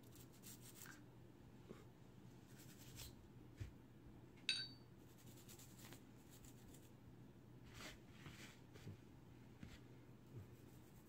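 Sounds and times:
toothbrush scratching on metal: 0.0s - 1.0s, 5.1s - 6.9s
sharp metallic clink: 4.5s - 4.9s.

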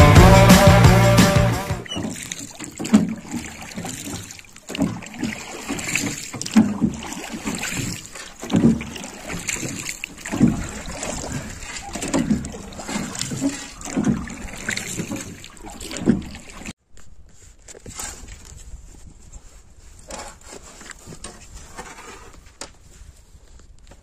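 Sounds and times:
background music: 0.0s - 1.8s
oar strokes knocking and splashing: 1.8s - 24.0s
low wash of water: 1.9s - 16.8s.

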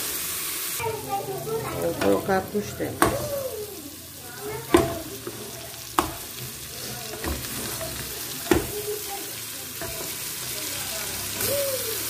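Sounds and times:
meat sizzling in pot: 0.0s - 12.0s
wooden spoon knocking pot: 3.0s - 3.4s, 4.6s - 8.9s.

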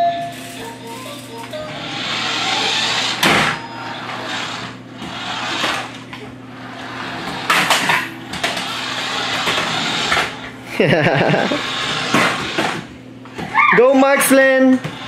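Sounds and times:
toy car motor whirring: 0.3s - 6.0s, 6.7s - 10.4s, 11.2s - 12.9s.

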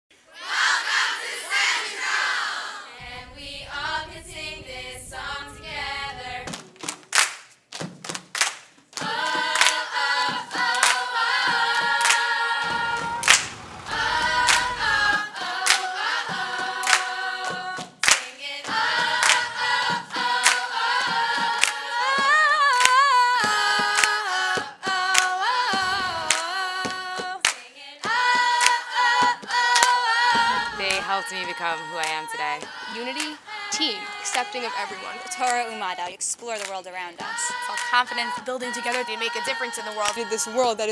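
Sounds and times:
choir singing a cappella: 0.2s - 7.0s, 9.0s - 36.2s, 36.9s - 40.9s
hand claps: 6.5s - 12.3s, 12.9s - 13.6s, 14.4s - 31.1s, 32.0s - 33.4s, 35.3s - 35.7s, 36.6s - 38.0s
crowd cheering: 9.0s - 17.8s, 18.7s - 27.4s, 28.0s - 36.0s, 36.6s - 40.9s.

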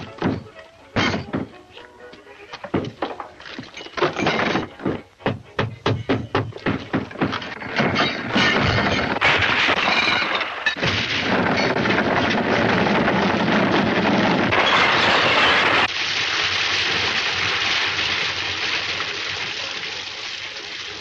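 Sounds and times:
heavy chain rattling over wood: 2.7s - 5.0s, 5.8s - 15.9s.

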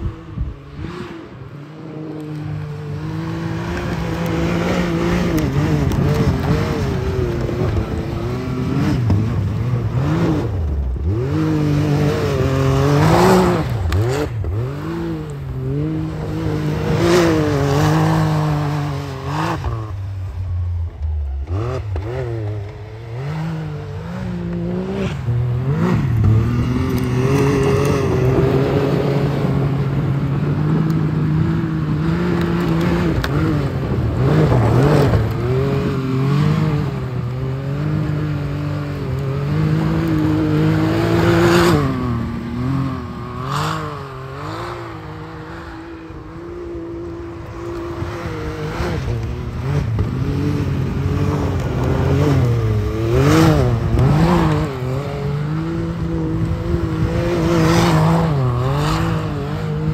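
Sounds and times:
vehicle engine revving: 0.0s - 59.9s.

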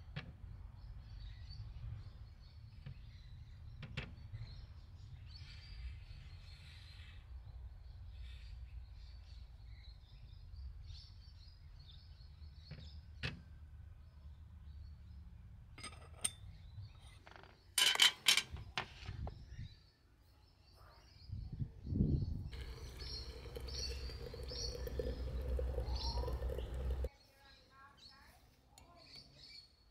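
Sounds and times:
small birds chirping faintly: 18.6s - 29.9s
teapot lid clicking and clinking: 22.6s - 27.1s.

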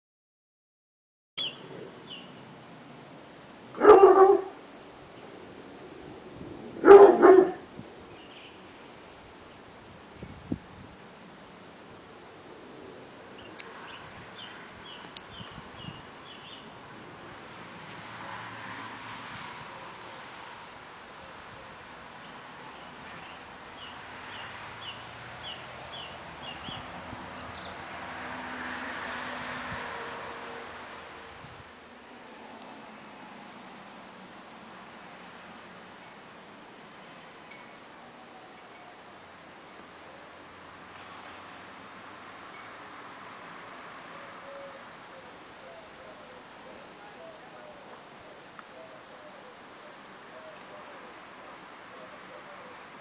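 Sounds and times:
dog barking: 3.8s - 4.6s, 6.8s - 7.6s.

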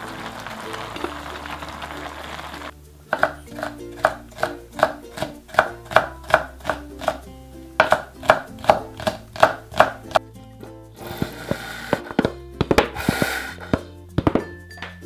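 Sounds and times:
light background music: 0.0s - 15.0s
knife chopping on wooden board: 3.1s - 7.2s, 7.8s - 10.2s, 11.1s - 14.5s.

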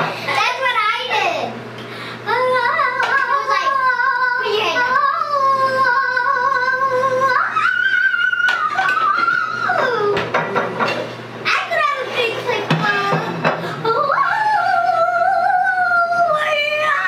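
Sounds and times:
girl singing long notes: 2.3s - 10.2s, 13.8s - 17.0s.

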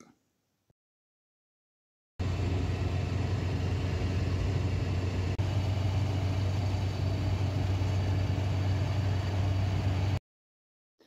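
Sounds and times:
car engine and road drone: 2.2s - 10.2s.

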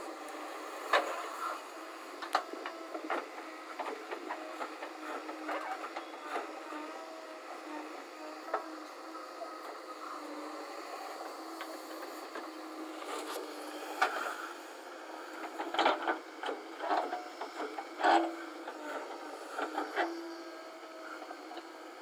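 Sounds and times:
loader bucket scraping soil and stones: 0.0s - 7.8s, 11.1s - 14.6s, 15.2s - 20.7s.

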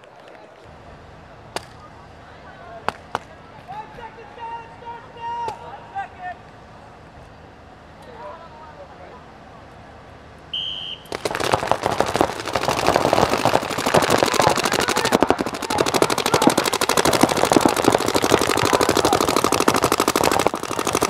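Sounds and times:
paintball markers firing: 11.1s - 21.0s.

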